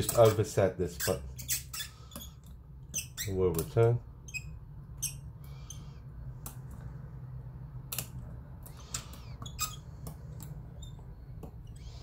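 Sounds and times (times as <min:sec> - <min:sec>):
short squeaks: 0:00.0 - 0:06.0, 0:08.8 - 0:10.0, 0:10.7 - 0:12.0
steady low hum: 0:00.0 - 0:12.0.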